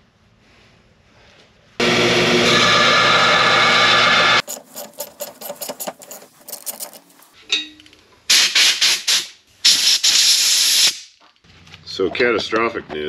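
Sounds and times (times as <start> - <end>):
electric metal-cutting saw running: 1.8 - 6.1
metal clicks and ticks: 4.4 - 8.0
short hissing bursts: 8.3 - 11.1.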